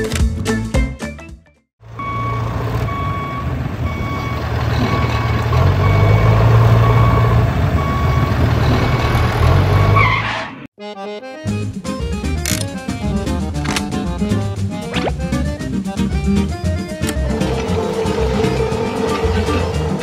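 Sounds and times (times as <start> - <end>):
heavy truck engine running: 1.8 - 10.0, 15.2 - 20.0
reversing alarm beeping: 1.9 - 10.0.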